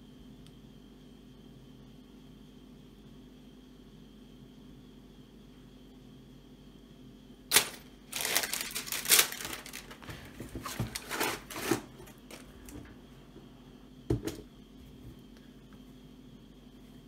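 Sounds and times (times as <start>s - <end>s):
tissue paper rustling and crinkling: 7.5s - 12.8s.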